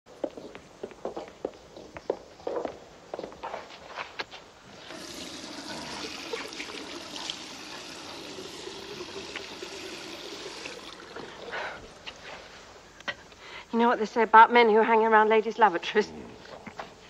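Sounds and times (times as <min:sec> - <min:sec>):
footstep clicks: 0:00.1 - 0:04.5
water running: 0:04.7 - 0:12.1.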